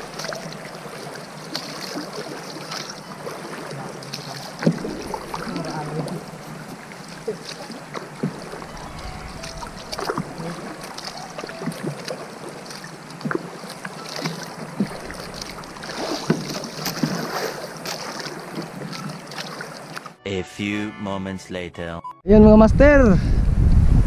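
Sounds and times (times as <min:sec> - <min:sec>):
water splashing around canoe: 0:00.0 - 0:20.2
wind rumbling on microphone: 0:04.6 - 0:07.3, 0:08.1 - 0:11.4, 0:22.3 - 0:24.0.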